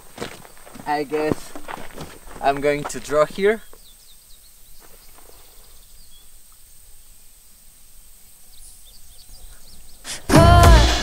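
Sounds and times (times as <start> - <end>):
faint bird chirps: 3.2 - 10.2.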